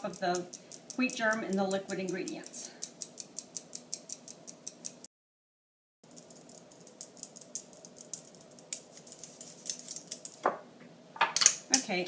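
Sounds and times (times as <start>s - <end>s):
flour sifter clicking: 6.1s - 10.5s.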